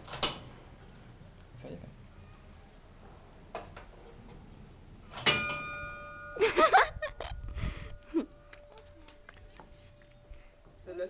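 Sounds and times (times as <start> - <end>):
bell ringing: 5.2 - 9.1.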